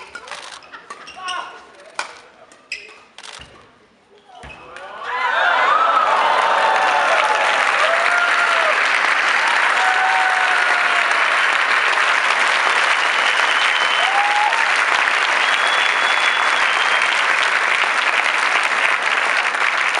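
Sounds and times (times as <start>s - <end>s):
large audience applauding: 5.0s - 20.0s.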